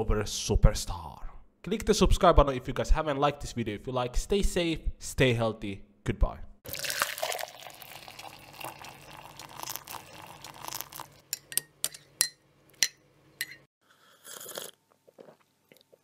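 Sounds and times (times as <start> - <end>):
liquid pouring into glass: 6.7 - 11.2
glass clinking: 11.3 - 13.7.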